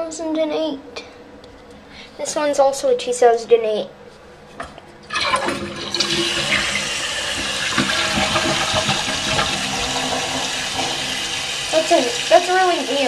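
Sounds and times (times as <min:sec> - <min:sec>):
toilet flushing: 0:05.0 - 0:13.0.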